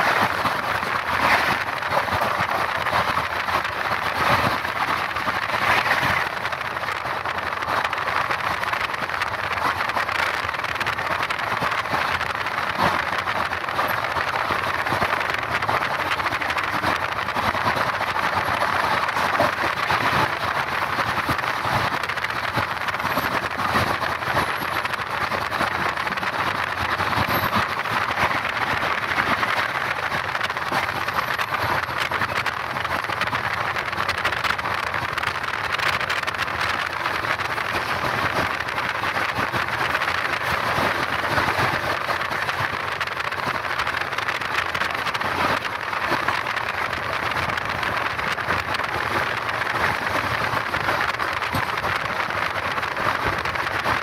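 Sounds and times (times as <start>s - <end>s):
train wheels rolling on rails: 0.0s - 54.0s.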